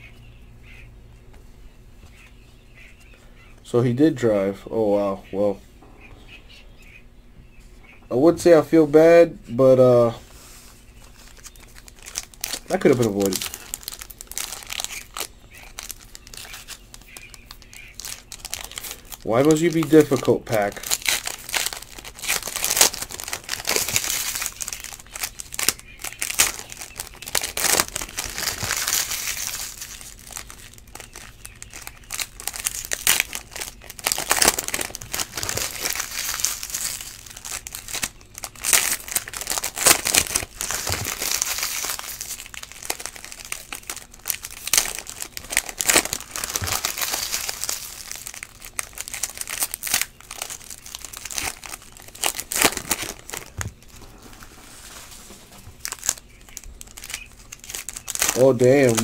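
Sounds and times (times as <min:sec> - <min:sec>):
foil wrappers crinkling and tearing: 0:09.7 - 0:59.0
cards being handled: 0:10.3 - 0:50.1.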